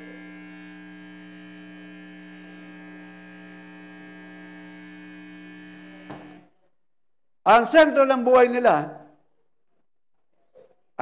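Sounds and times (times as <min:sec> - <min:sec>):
electrical mains hum: 0:00.0 - 0:06.6.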